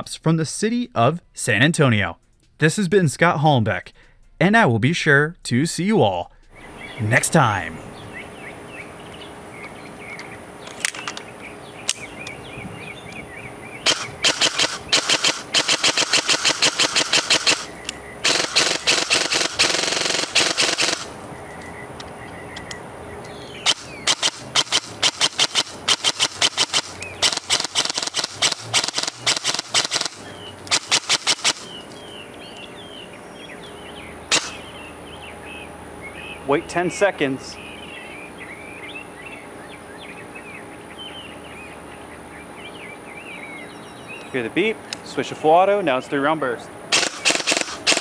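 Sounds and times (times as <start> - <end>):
airsoft rifle firing: 13.8 - 21.2, 23.6 - 31.8, 34.3 - 34.6, 46.9 - 48.0.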